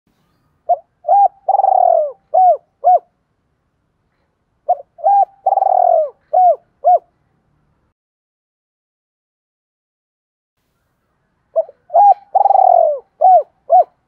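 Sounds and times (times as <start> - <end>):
dove cooing: 0.7 - 3.1, 4.7 - 7.1, 11.6 - 14.0.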